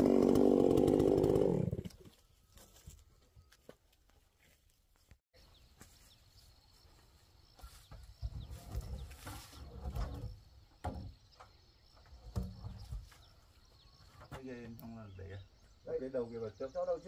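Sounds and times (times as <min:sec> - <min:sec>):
wooden knocks and bumps: 0:07.9 - 0:14.7.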